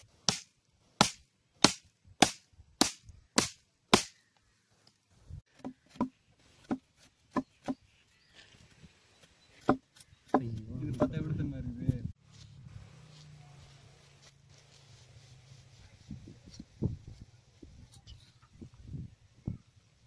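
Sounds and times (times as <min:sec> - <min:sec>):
blade chopping wood: 0:00.2 - 0:04.2.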